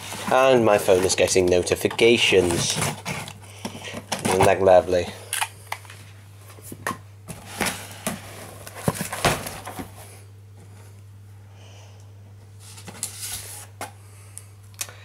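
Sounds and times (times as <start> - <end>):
steady low hum: 0.0 - 15.0
cardboard box rustling: 7.3 - 10.0.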